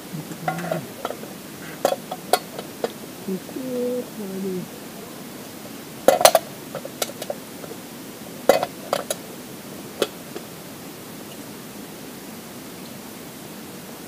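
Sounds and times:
metal cookware clinking: 6.1s - 7.4s, 8.5s - 9.2s.

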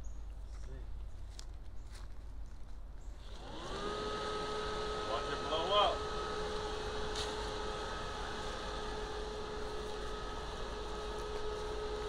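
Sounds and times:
electric blower fan running: 3.2s - 12.0s.

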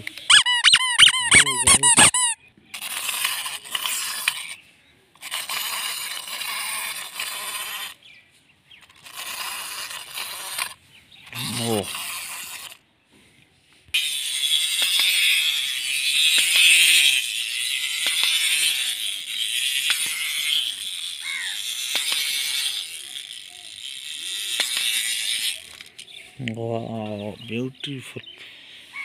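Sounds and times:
wind-up toy buzzing rattle: 0.2s - 4.6s, 5.2s - 8.0s, 8.8s - 12.8s, 13.9s - 26.2s
sharp clicks: 14.7s - 15.4s, 16.2s - 26.6s.

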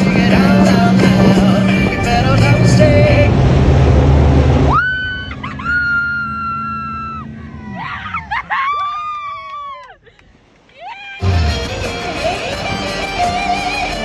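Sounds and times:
loud music: 0.0s - 4.0s, 11.2s - 14.0s.

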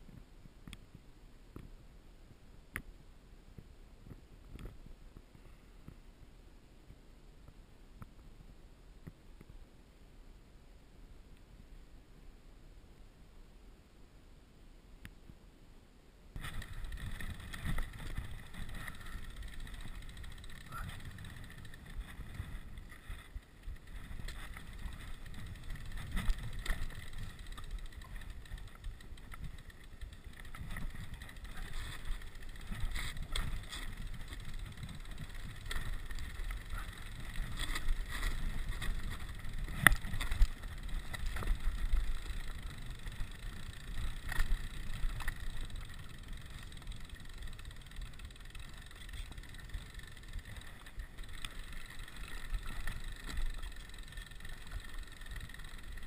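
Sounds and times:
bike rattling with sharp clicks: 16.4s - 56.0s
bike tyres rumbling over stones: 16.4s - 56.0s.

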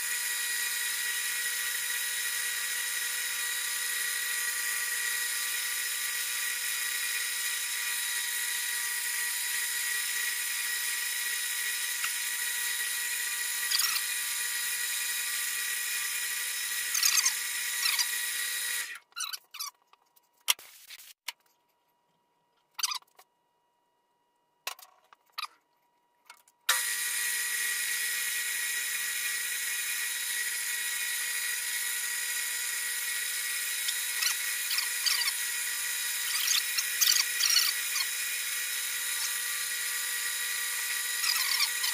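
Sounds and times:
metal lathe whining: 26.7s - 41.9s.

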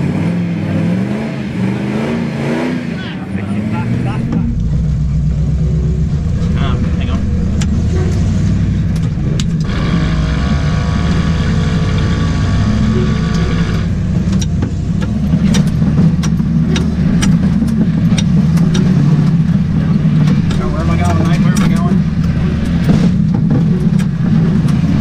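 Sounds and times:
engine running under load: 0.0s - 25.0s
sharp knocks and clunks: 12.0s - 25.0s.

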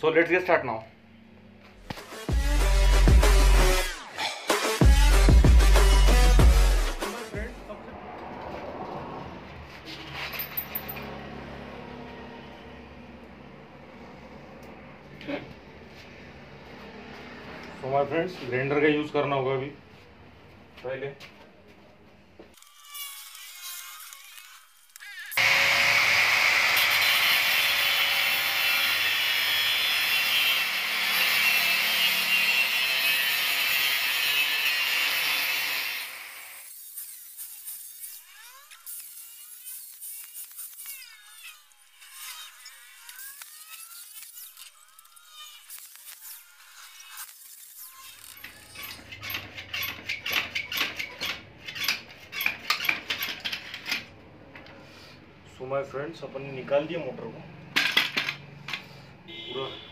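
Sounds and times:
metal spanner and bolts clinking: 10.0s - 11.1s, 48.2s - 54.1s, 57.8s - 58.9s
grinder motor whine: 22.6s - 30.0s
grinder disc grinding metal: 22.6s - 54.1s.

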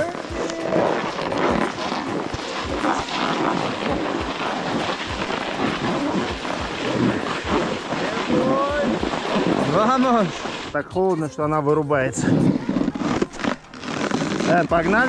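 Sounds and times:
snowboards scraping over snow: 0.0s - 10.9s, 12.1s - 15.0s.

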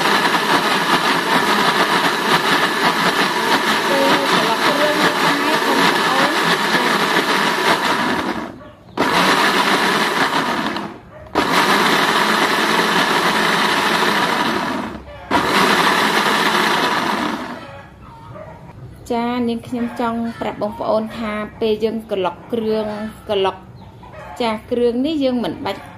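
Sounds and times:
blender motor running: 0.0s - 17.6s.

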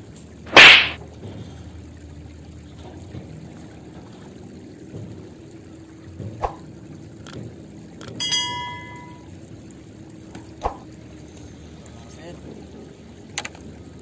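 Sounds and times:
trickling water: 0.0s - 14.0s
bright bell-like ding: 8.2s - 9.3s.

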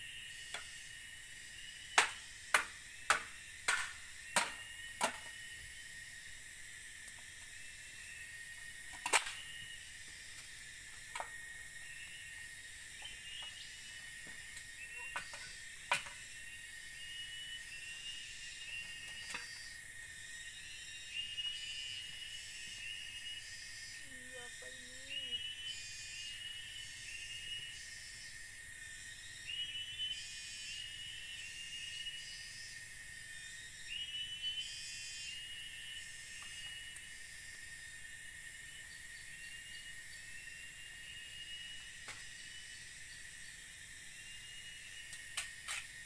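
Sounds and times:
forest insects droning: 0.0s - 46.0s
machete chopping bamboo: 1.9s - 5.4s.

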